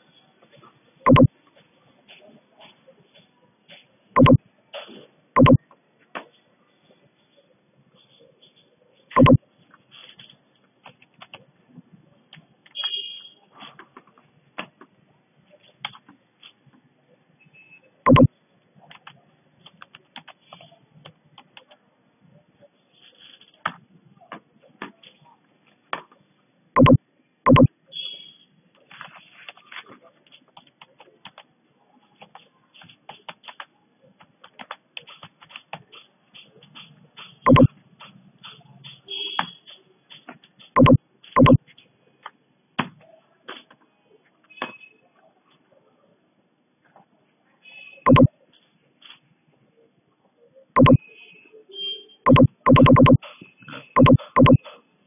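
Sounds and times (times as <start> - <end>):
keyboard and mouse clicks: 1.1 - 1.3, 4.2 - 4.4, 5.4 - 5.6, 9.2 - 9.4, 18.1 - 18.3, 26.8 - 27.7, 37.5 - 38.6, 40.8 - 41.6, 48.1 - 48.3, 50.8 - 51.0, 52.3 - 54.8.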